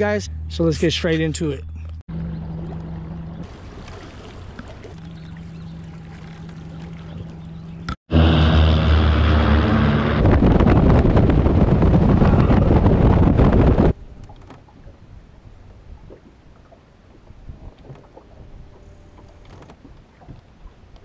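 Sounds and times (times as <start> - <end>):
outboard motor running: 1.8 - 14.8, 17.3 - 20.8
rushing wind and water: 8.2 - 21.0.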